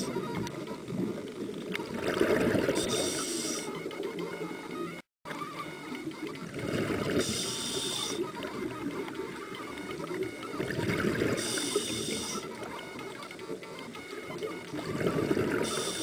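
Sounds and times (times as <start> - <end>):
bubbling exhale underwater: 1.8 - 3.7, 6.4 - 8.4, 10.6 - 12.4, 14.7 - 16.0
hissing regulator inhale: 2.7 - 3.7, 7.1 - 8.2, 11.2 - 12.5, 15.6 - 16.0.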